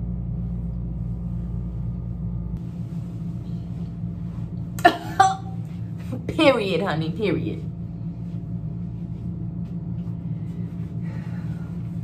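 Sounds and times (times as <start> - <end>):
ventilation fan humming: 0.0 - 12.0.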